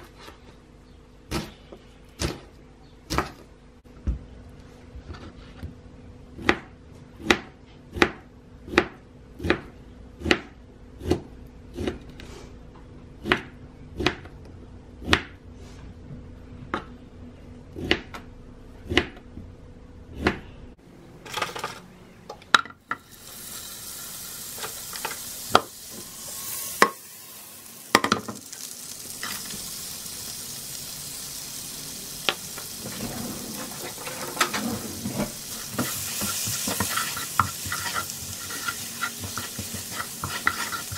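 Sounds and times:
knife chopping on cutting board: 6.4s - 12.0s
garlic sizzling in a frying pan: 22.9s - 40.9s.

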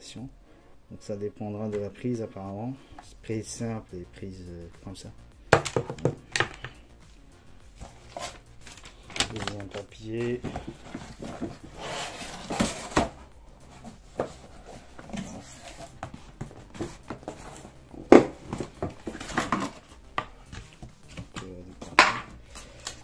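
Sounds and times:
cardboard rustling: 7.7s - 23.0s.

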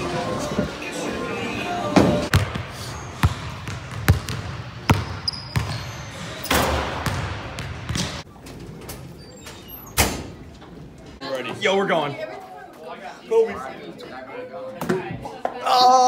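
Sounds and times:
basketball bouncing on hardwood: 3.2s - 5.8s, 7.0s - 8.2s.

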